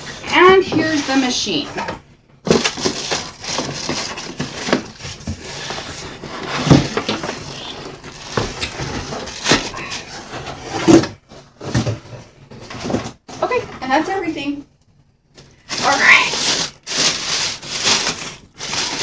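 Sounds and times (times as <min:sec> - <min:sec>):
plastic wrapping crinkling: 0:00.0 - 0:01.6, 0:02.5 - 0:10.9, 0:15.4 - 0:19.0
cardboard scraping: 0:02.5 - 0:13.6, 0:15.7 - 0:19.0.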